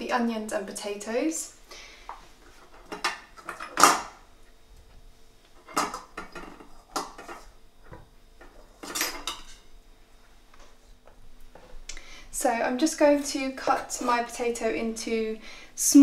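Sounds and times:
kitchenware knocks and clinks: 5.6s - 9.6s.

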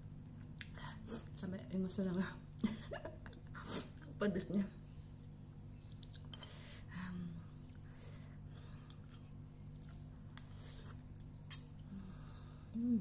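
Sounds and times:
steady low hum: 0.0s - 13.0s
person chewing noodles: 7.6s - 12.8s.

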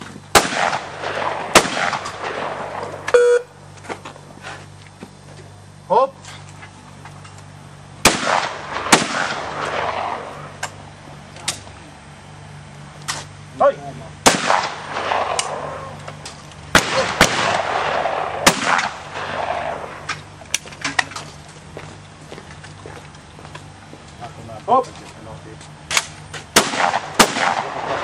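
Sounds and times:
shotgun shots with echo: 0.3s - 3.0s, 8.0s - 10.4s, 14.2s - 15.9s, 16.7s - 20.1s, 26.6s - 28.0s.

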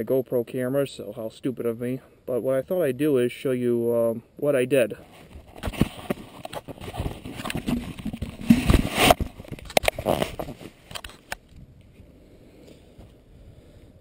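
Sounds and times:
camera handling clicks and scrapes: 5.1s - 11.6s.

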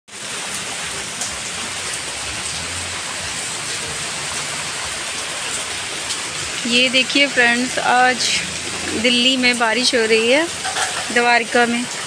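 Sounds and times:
heavy rain on pavement and cars: 0.1s - 12.0s.

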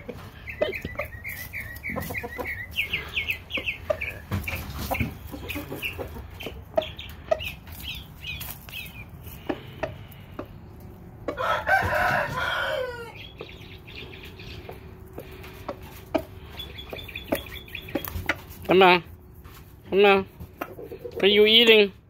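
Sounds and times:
chickens clucking: 0.0s - 21.9s
rooster crowing: 11.3s - 13.3s.

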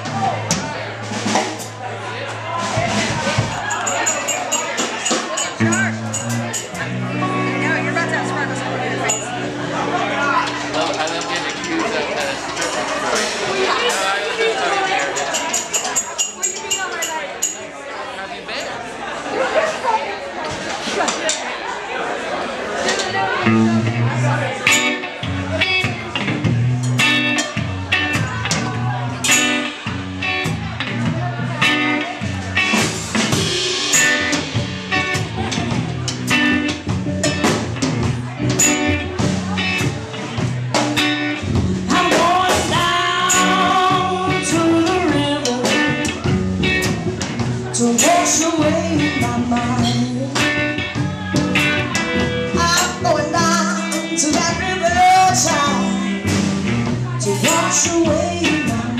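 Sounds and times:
blues band playing: 0.0s - 17.4s, 22.7s - 58.9s
woman singing into a microphone: 41.9s - 46.0s, 47.8s - 50.7s, 52.6s - 56.1s, 57.2s - 58.9s.

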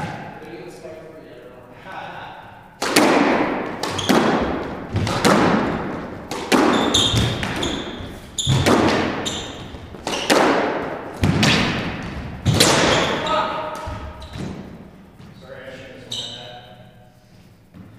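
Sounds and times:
squash ball hitting rackets and walls: 0.0s - 0.4s, 2.7s - 15.4s.

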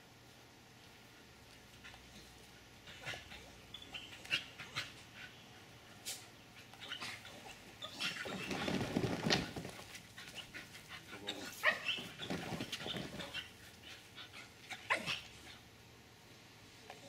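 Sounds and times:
dogs yelping and whining: 2.8s - 5.7s, 6.5s - 15.8s
dogs scuffling: 6.7s - 14.0s.

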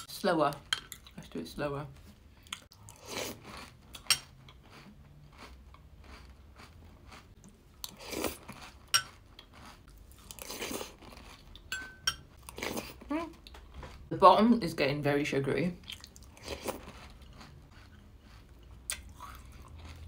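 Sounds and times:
chewing crunchy cereal: 2.5s - 11.8s, 15.8s - 20.0s.

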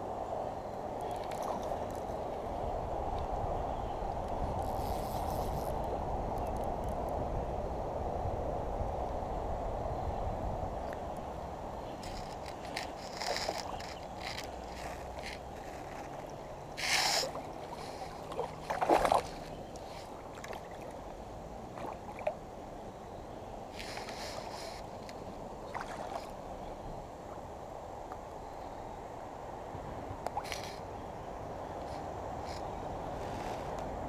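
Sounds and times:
moving water: 0.8s - 2.6s, 11.8s - 28.9s, 29.5s - 33.8s.

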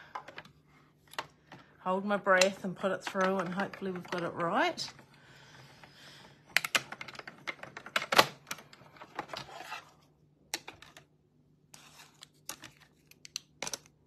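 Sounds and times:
plastic plates clicking and rustling: 2.4s - 5.1s, 6.5s - 9.7s.

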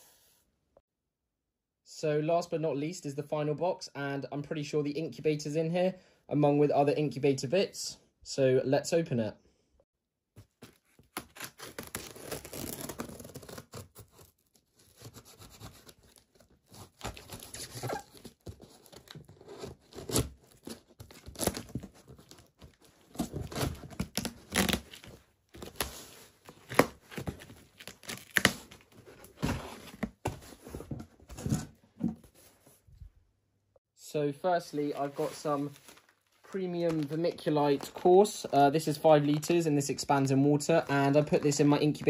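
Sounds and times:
tape ripping off cardboard: 11.1s - 22.5s, 23.1s - 30.1s.

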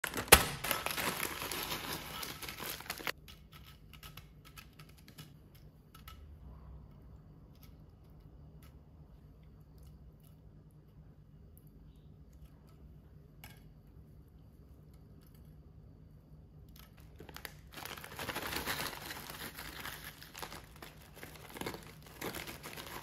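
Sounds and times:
foil snack bag crinkling: 0.0s - 3.2s, 17.0s - 23.0s.

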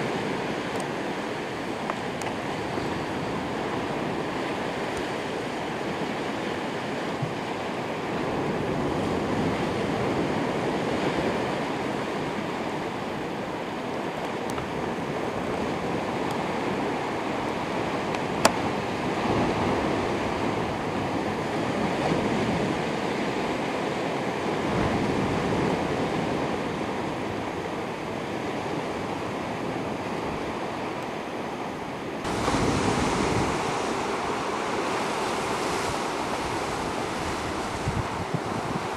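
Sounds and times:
wind on microphone: 0.0s - 38.9s
sea washing against rocks: 32.2s - 38.9s.

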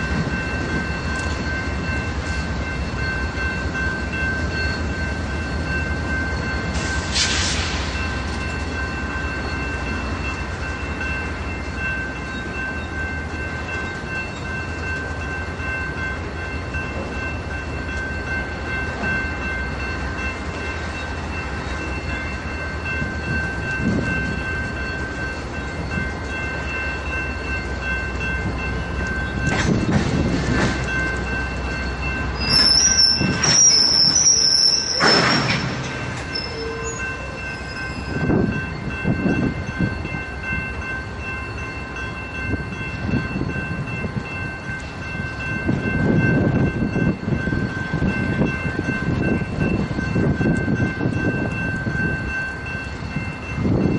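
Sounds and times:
train rolling low rumble: 0.0s - 53.9s
train wheels squealing: 4.1s - 10.0s, 31.4s - 38.9s.

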